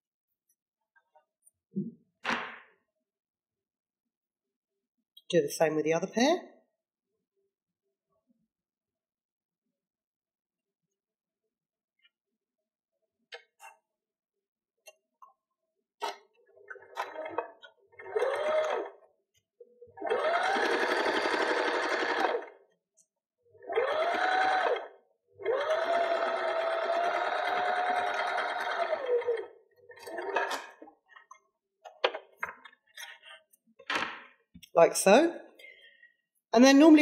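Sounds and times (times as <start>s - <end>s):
sewing machine stitching: 16.7s - 19.1s, 20.0s - 22.6s, 23.6s - 30.8s.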